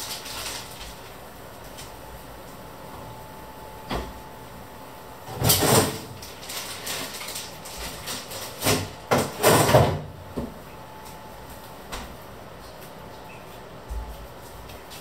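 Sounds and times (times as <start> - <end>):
knocks and scrapes in a kitchen: 5.2 - 11.2.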